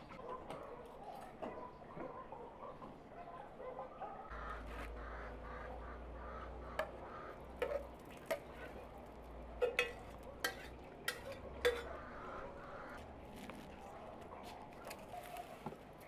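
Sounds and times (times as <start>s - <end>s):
metal spoon scraping pot: 7.6s - 8.9s, 9.6s - 12.1s.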